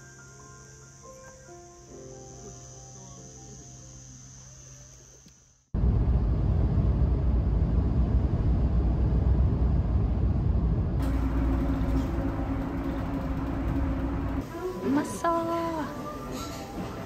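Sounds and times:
vehicle rumble from inside: 5.8 - 14.4
steady low hum: 5.8 - 14.8.

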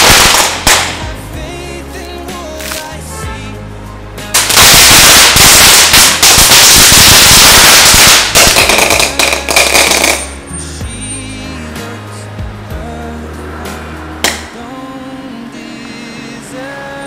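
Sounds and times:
firecrackers crackling: 0.0 - 1.5, 2.3 - 3.3, 4.2 - 10.5.

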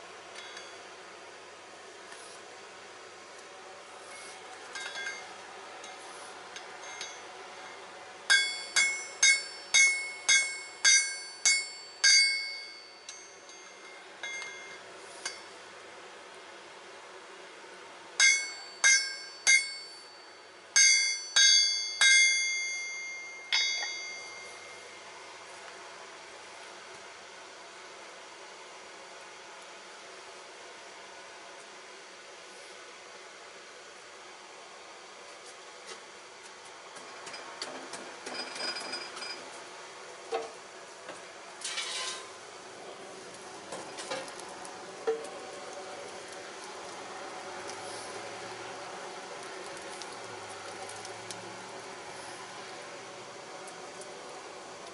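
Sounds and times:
hammer striking anvil: 8.3 - 13.6, 18.2 - 20.1, 20.8 - 24.5.

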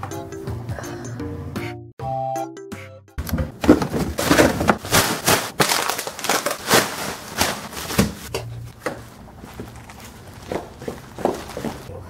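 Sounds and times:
plastic bag rustling: 3.5 - 8.3, 9.4 - 11.9.

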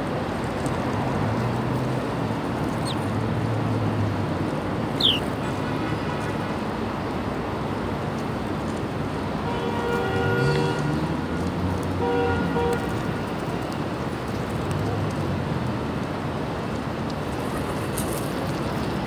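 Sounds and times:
city traffic noise: 0.0 - 19.0
small bird chirps: 2.8 - 3.0, 5.0 - 5.3.

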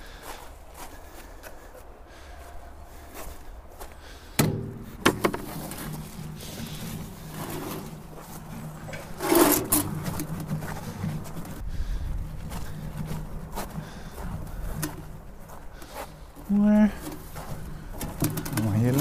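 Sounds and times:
wheelbarrow rattling over frozen ground: 4.5 - 11.6, 12.3 - 19.0
scraping clatter: 5.4 - 11.6
bucket clanking into wheelbarrow: 18.0 - 19.0.

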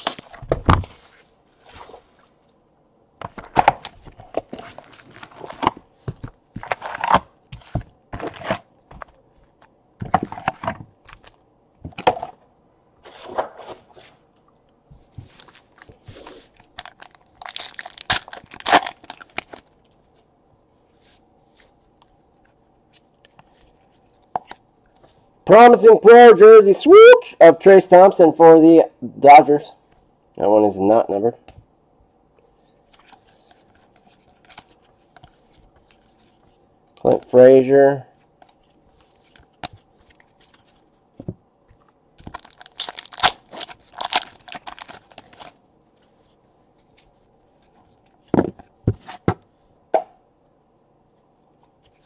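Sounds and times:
foil packs crinkling and tearing: 16.5 - 19.7, 42.2 - 45.6.

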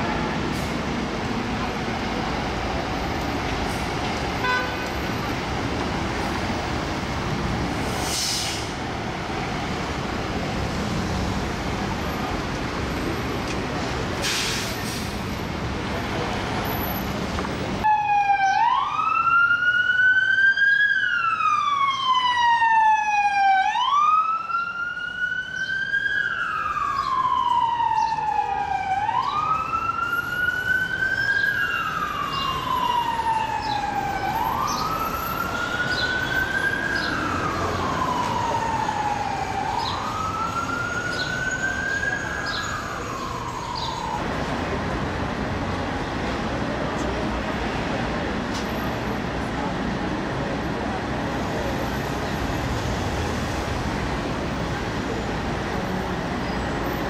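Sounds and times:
street and engine noise: 0.0 - 57.0
fire truck siren wailing: 17.8 - 44.8.

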